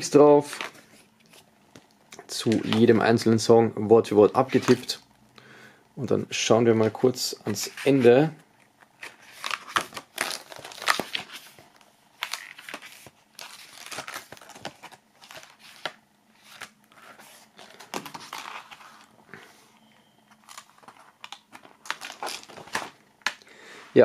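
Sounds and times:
paper pages rustling: 6.8s - 19.6s, 20.3s - 23.0s.

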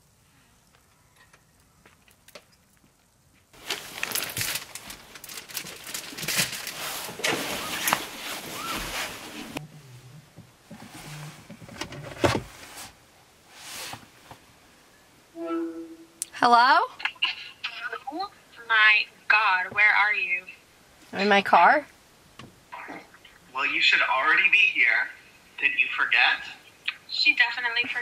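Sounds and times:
bouquet wrapping crinkling: 3.6s - 9.6s.

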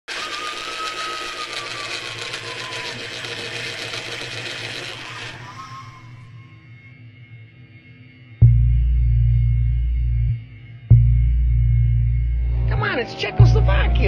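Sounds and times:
faint descending whistle: 0.1s - 8.0s
low hum: 1.4s - 14.0s.

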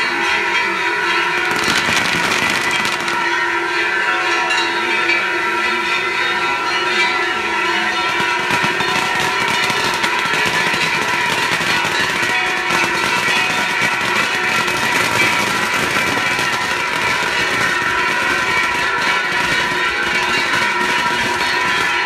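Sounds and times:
festival music: 0.2s - 5.0s, 5.6s - 22.0s
fireworks hissing and crackling: 1.2s - 3.6s, 8.0s - 22.0s.

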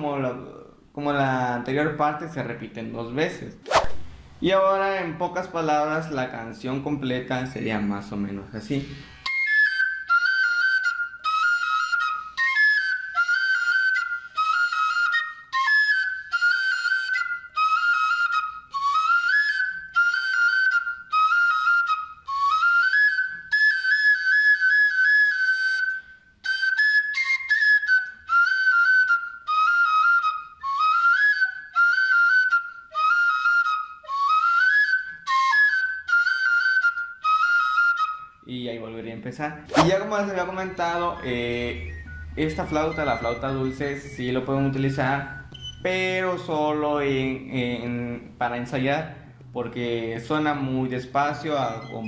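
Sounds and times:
cane flute playing high notes: 8.7s - 38.4s, 39.7s - 46.0s, 51.3s - 52.0s.

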